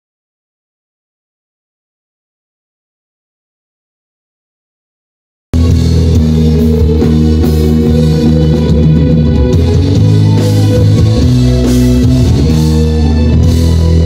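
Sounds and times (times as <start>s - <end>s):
live pop-rock band: 5.6s - 14.0s.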